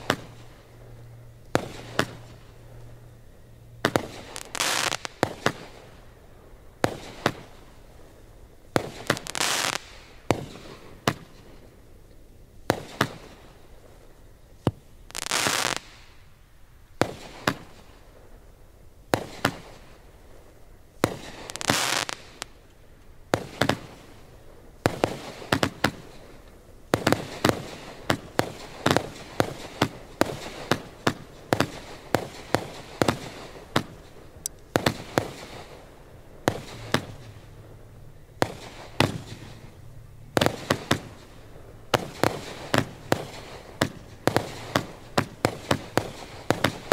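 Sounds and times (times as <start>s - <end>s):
fireworks exploding: 0.0s - 0.6s, 1.5s - 2.8s, 3.8s - 6.0s, 6.8s - 8.0s, 8.7s - 11.4s, 14.7s - 16.2s, 19.1s - 20.0s, 21.0s - 22.6s, 23.3s - 46.9s.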